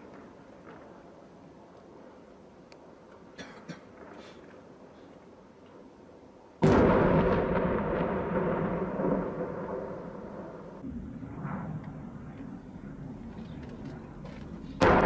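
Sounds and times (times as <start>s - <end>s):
large explosion with rolling rumble: 6.6s - 13.2s, 14.8s - 15.0s.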